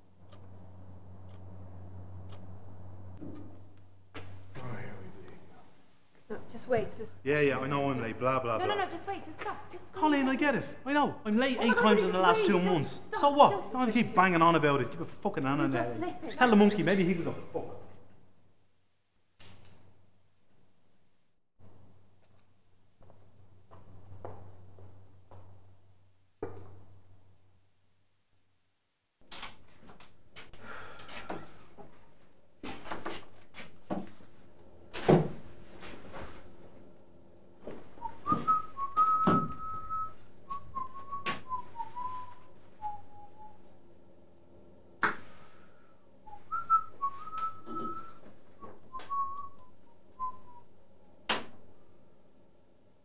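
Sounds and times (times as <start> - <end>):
person whistling a tune: 38.0 - 43.6, 46.3 - 50.6.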